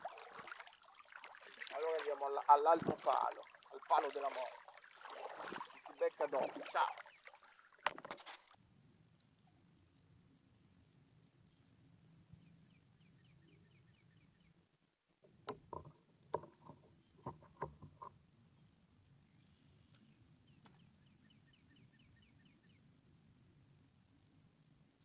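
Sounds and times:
paddle knocking plastic kayak hull: 1.3s - 8.4s.

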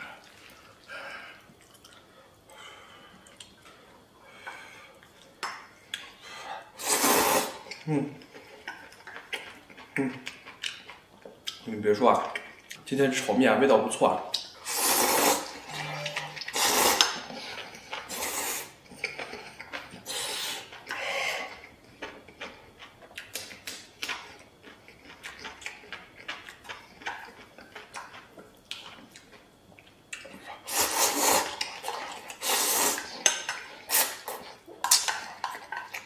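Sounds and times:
chewing: 0.2s - 2.2s, 7.6s - 12.8s, 16.0s - 36.0s
person slurping noodles: 6.8s - 7.6s, 14.6s - 17.5s, 18.1s - 18.8s, 30.7s - 33.1s.

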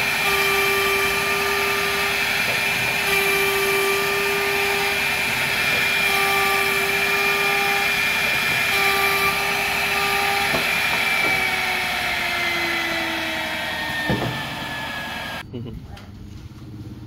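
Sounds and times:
woodworking machine motor whine: 0.0s - 15.4s
sharp knocks: 14.0s - 14.5s.

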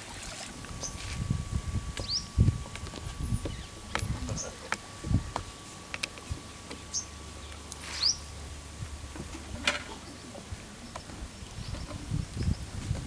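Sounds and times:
bird chirps: 2.0s - 2.3s.

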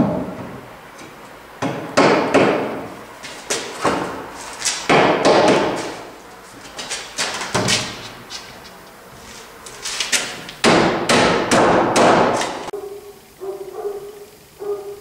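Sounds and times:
wooden posts knocking and banging: 3.4s - 6.1s.

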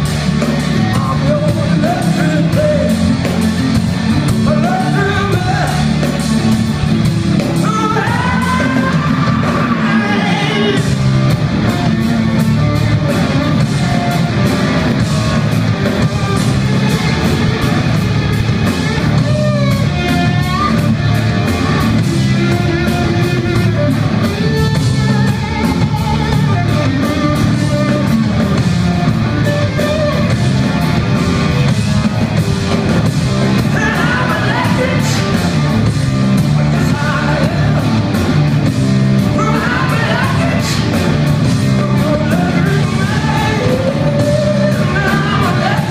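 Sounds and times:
drum beat: 0.0s - 45.9s
electric guitar: 0.0s - 45.9s
person singing: 7.6s - 10.9s, 33.6s - 35.7s, 36.6s - 38.1s, 39.2s - 45.9s.

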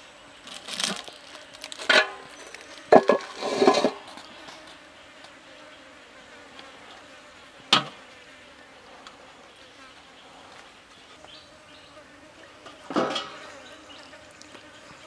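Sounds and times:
insects buzzing: 0.0s - 15.0s.

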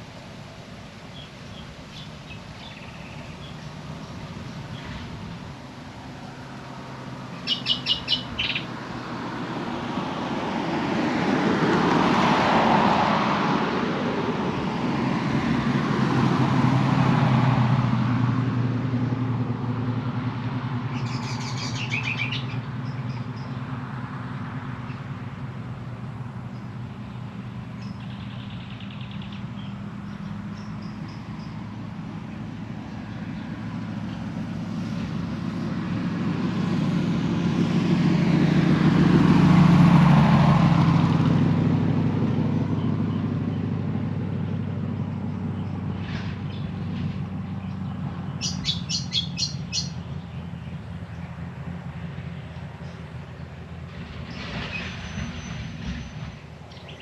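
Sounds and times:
diesel locomotive engine hum: 0.0s - 57.0s
birds chirping: 1.0s - 5.4s, 7.0s - 8.8s, 20.9s - 23.7s, 26.5s - 34.4s, 45.0s - 53.7s, 54.3s - 57.0s
train rolling noise: 53.8s - 56.7s.

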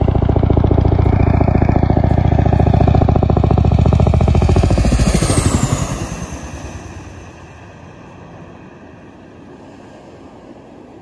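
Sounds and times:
helicopter rotor chop: 0.0s - 8.4s
turbine whine: 0.0s - 11.0s.

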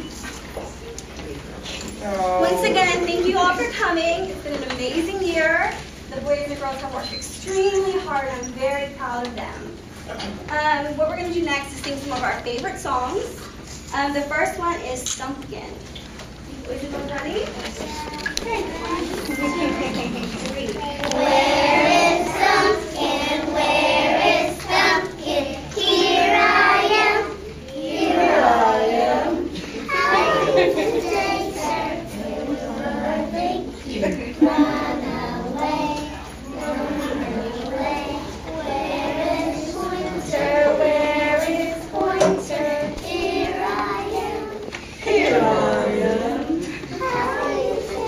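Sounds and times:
children singing in unison: 20.8s - 33.8s, 34.4s - 48.0s.

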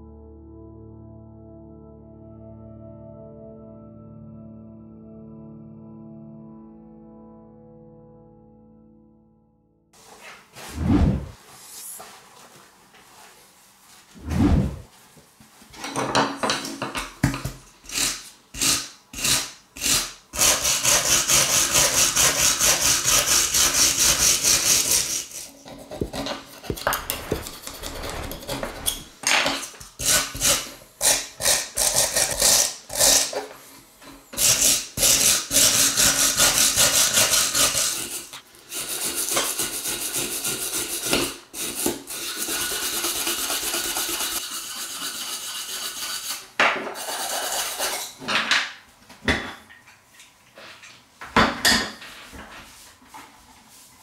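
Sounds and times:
wire brush scrubbing metal: 17.9s - 29.2s, 34.4s - 48.2s.

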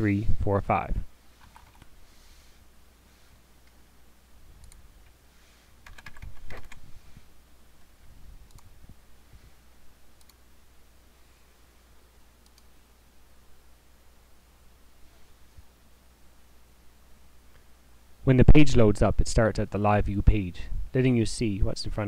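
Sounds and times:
faint low hum: 0.0s - 22.0s
keyboard keystrokes: 1.4s - 1.9s, 5.8s - 6.8s.

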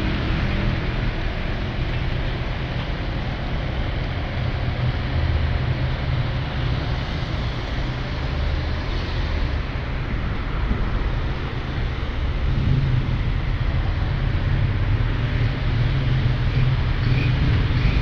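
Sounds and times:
road and wind hiss: 0.0s - 18.0s
vehicle engine rumble: 0.0s - 18.0s.

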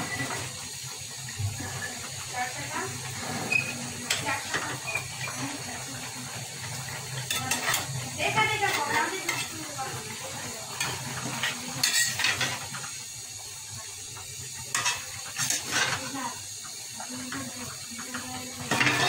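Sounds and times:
pan sizzling: 0.0s - 19.0s
spatula scraping metal pan: 3.1s - 5.6s, 10.8s - 12.5s.

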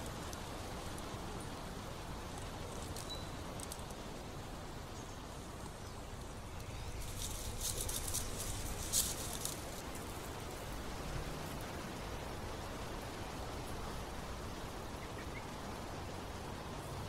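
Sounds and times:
dry leaves crackling underfoot: 6.2s - 11.0s.

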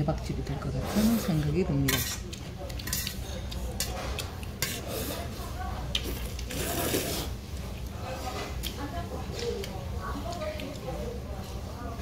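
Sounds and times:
chopsticks scraping metal bowl: 0.9s - 5.3s.

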